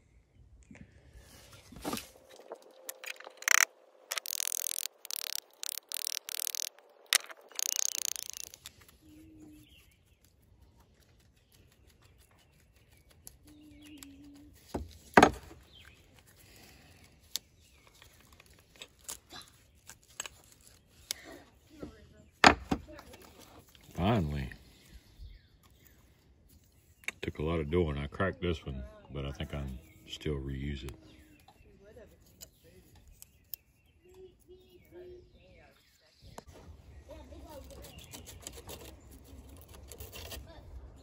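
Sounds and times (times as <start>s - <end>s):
leather washers scraping: 1.7s - 9.0s.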